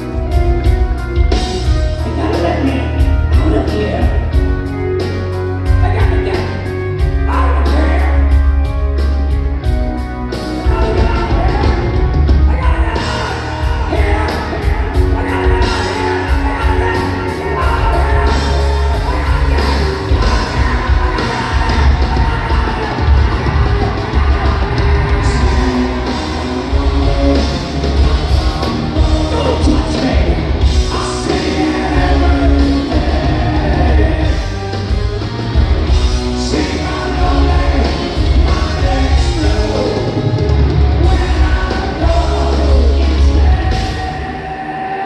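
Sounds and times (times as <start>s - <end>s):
live hard rock band: 0.0s - 45.0s
lead vocals: 10.4s - 45.0s.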